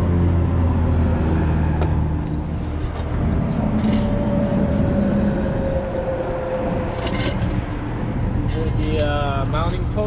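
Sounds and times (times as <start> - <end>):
metal parts clicking: 6.9 - 7.6.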